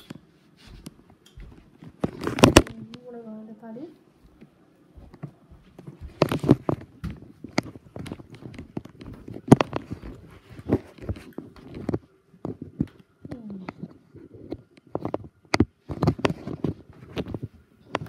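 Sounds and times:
footsteps: 0.0 - 3.0, 4.2 - 18.0
phone being handled: 1.9 - 2.8.

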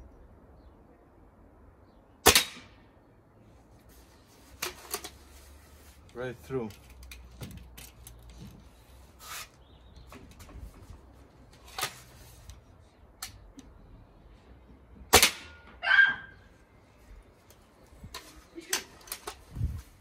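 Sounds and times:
air rifle shot: 2.2 - 2.8, 15.1 - 15.6.

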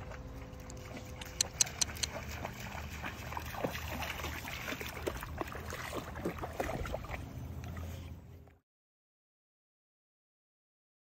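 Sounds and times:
dog splashing through water: 0.0 - 8.0.

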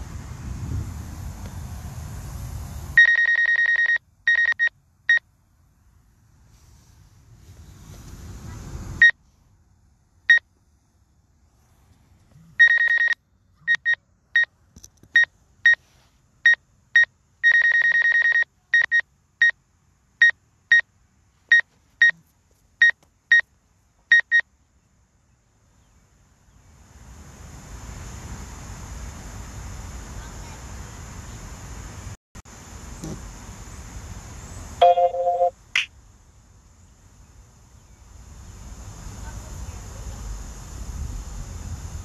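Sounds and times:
electronic beeps: 3.0 - 4.7, 12.6 - 14.5, 34.8 - 35.9.

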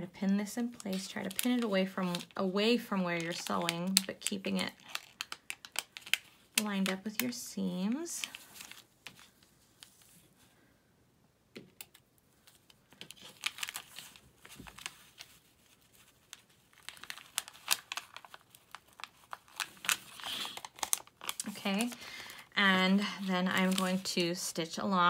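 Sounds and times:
paper crinkling: 0.6 - 7.4, 8.0 - 10.4, 12.4 - 24.6.

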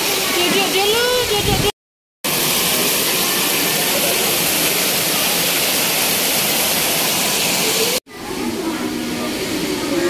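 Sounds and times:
heavy rain pouring: 2.3 - 10.0.

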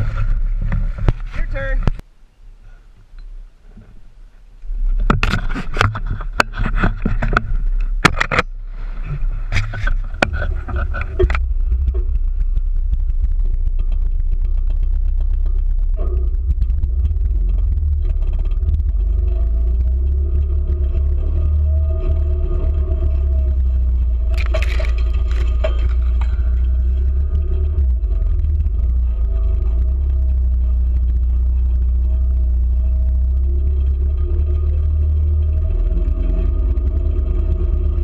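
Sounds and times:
utility vehicle engine drone: 0.0 - 38.0
camera rubbing against clothing: 4.8 - 12.2.

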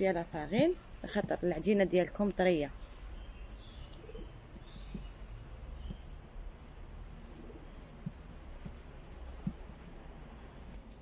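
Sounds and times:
birds chirping and whistling: 2.8 - 6.1
dove cooing: 4.0 - 5.0.

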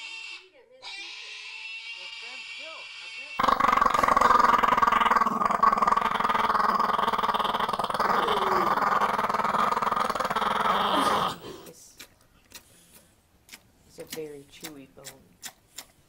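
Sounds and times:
dog growling: 3.4 - 11.7.

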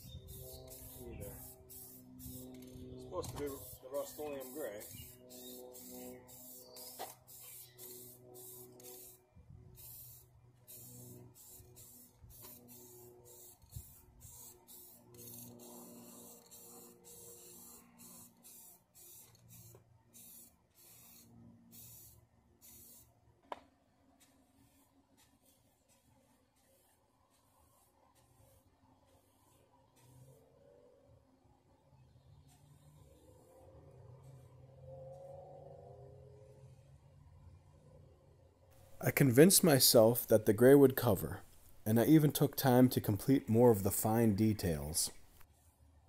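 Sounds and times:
aerosol spray can hissing: 0.3 - 23.1.

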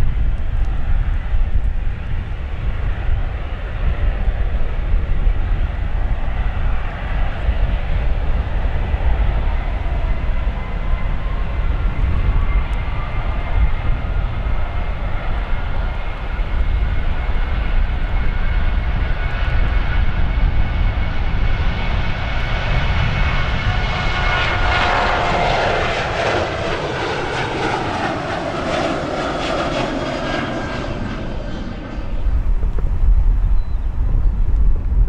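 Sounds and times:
jet plane taking off: 0.0 - 35.0.

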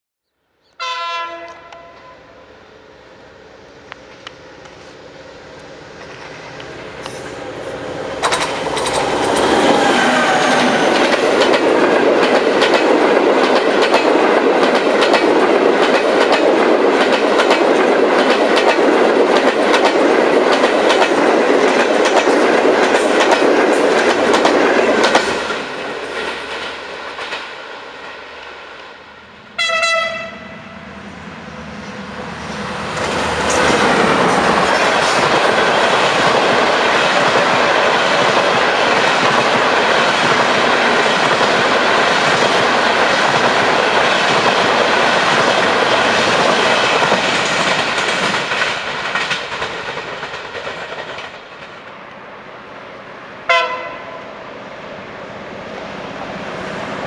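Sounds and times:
train horn blast: 0.8 - 2.5, 29.6 - 31.0, 53.5 - 54.3
train passing at speed: 0.8 - 57.0
wheels clacking over rail joints: 5.6 - 28.2, 32.9 - 52.0.

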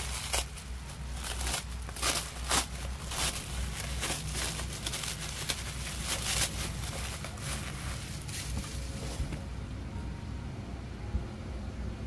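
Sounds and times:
plastic wrapping crinkling: 0.0 - 9.4
low steady hum: 0.0 - 12.0.

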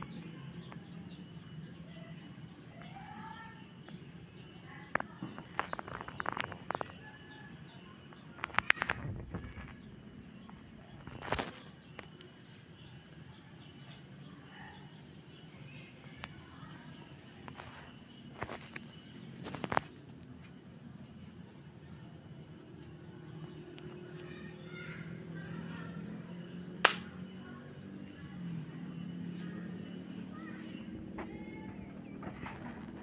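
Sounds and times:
faint high chirps: 0.0 - 32.0.

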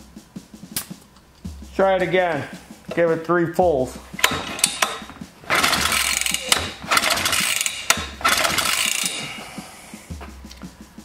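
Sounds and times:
engine cranking without firing: 4.1 - 9.6
pull-starter ratcheting: 4.2 - 9.3.

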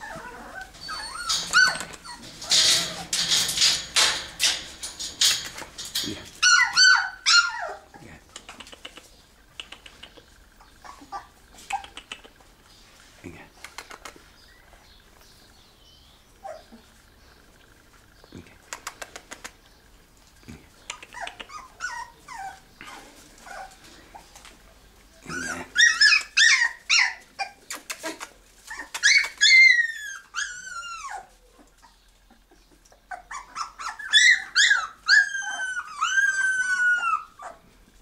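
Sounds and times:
puppies whining and yelping: 0.0 - 5.3, 6.4 - 8.0, 10.4 - 12.1, 16.3 - 17.1, 20.9 - 24.5, 25.2 - 27.6, 28.6 - 37.8.

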